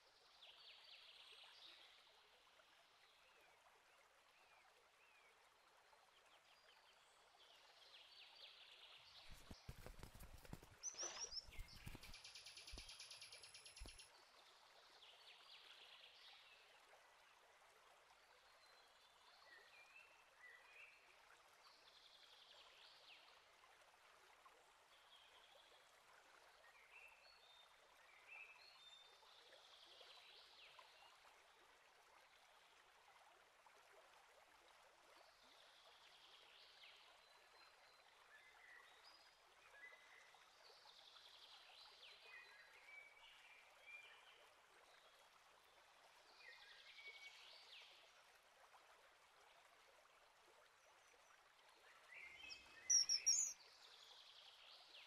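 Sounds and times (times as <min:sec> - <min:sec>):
soft steady hiss: 0:00.0 - 0:55.0
distant songbird singing: 0:52.2 - 0:53.6.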